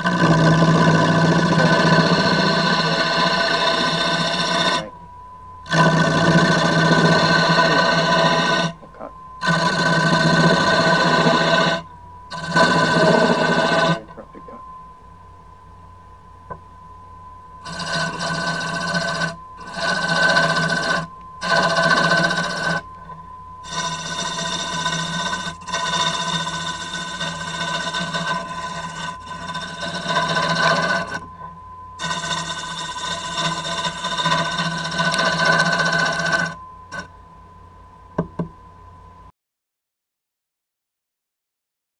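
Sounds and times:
gouge cutting spinning wood: 0.0 - 5.0, 5.7 - 14.5, 17.6 - 37.1
wood lathe whining: 0.0 - 15.0, 17.6 - 37.1.

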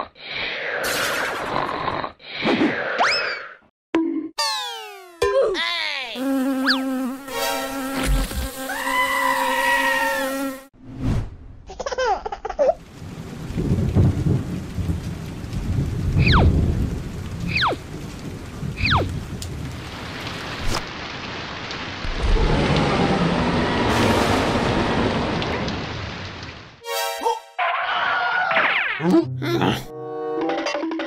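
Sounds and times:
steady rain: 12.5 - 26.8
low rumbles of thunder: 12.9 - 20.1.

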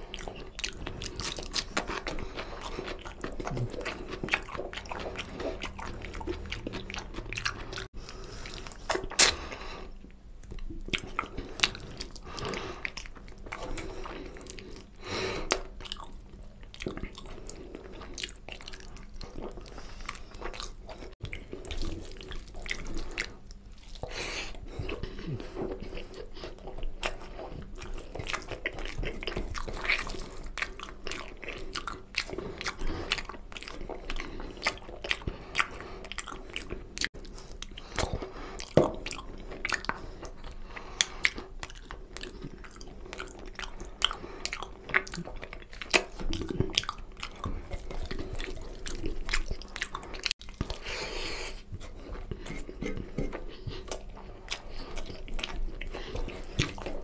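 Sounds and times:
person chewing food: 0.0 - 57.0.

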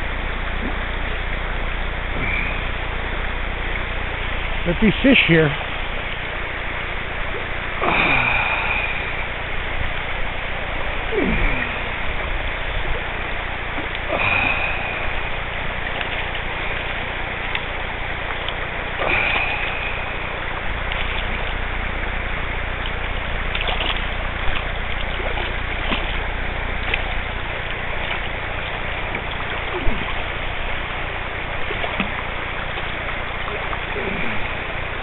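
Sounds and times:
shallow river water rushing: 0.0 - 35.0
fish splashing: 3.5 - 35.0
wind rumble on microphone: 5.6 - 35.0.

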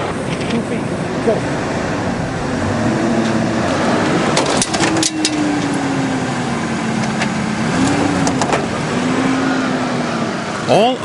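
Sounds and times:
metal poles cracking and snapping: 4.0 - 5.8.

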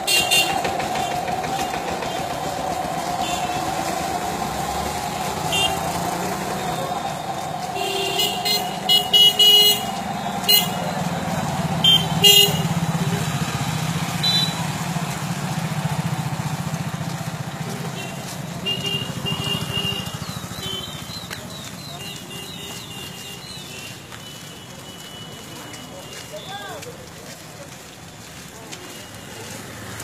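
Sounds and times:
vehicle horns tooting: 0.0 - 2.5, 3.2 - 4.2, 4.9 - 14.9, 17.8 - 21.1, 21.9 - 26.8
engine humming: 0.0 - 24.3.

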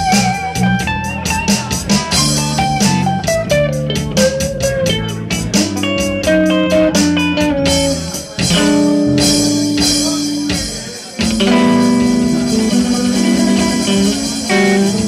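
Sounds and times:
guitar chords ringing: 0.0 - 15.0
live rock band: 0.0 - 15.0.

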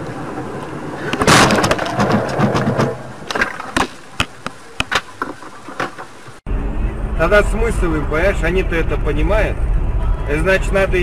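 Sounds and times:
vehicle crash: 1.0 - 6.4
metal crunching and scraping: 1.1 - 6.4.

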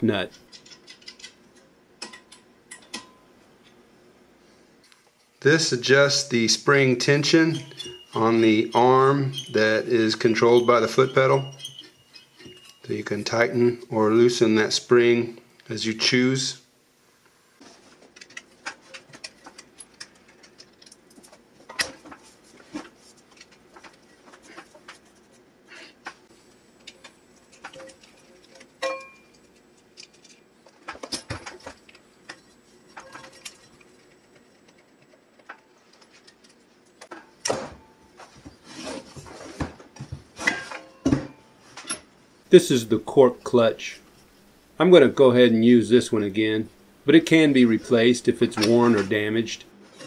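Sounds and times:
metal parts clanking: 26.9 - 37.3.

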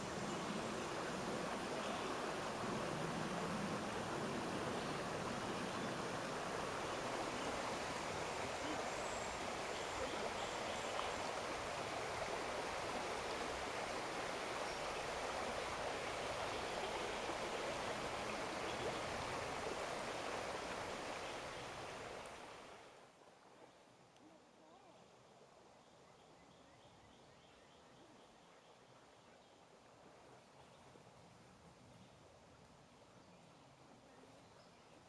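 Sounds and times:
creek water flowing over stones: 0.0 - 25.8.

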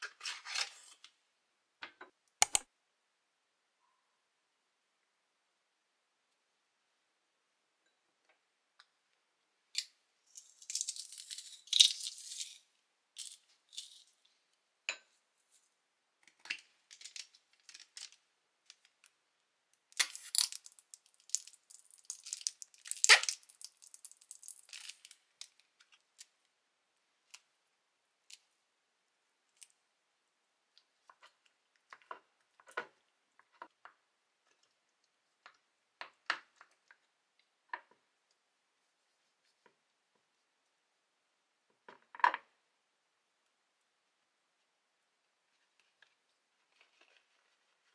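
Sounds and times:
garlic press crushing garlic: 2.4 - 2.6
squeeze bottle squirting: 22.9 - 24.6.

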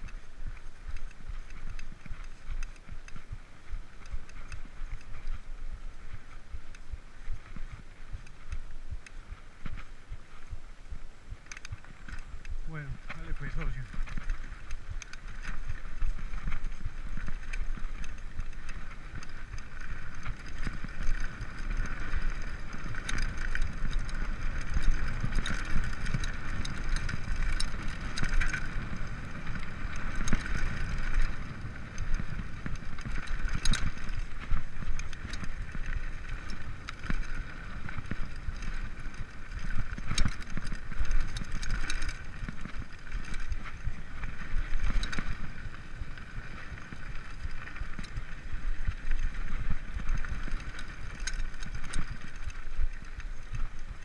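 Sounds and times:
bike rattling and knocking: 0.0 - 54.0
bike tyres rumbling on dirt: 0.0 - 54.0.

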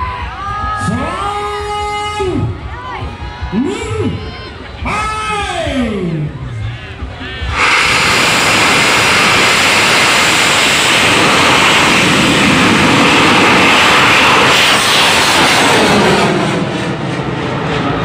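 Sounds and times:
rocket motor roaring: 7.4 - 18.0.

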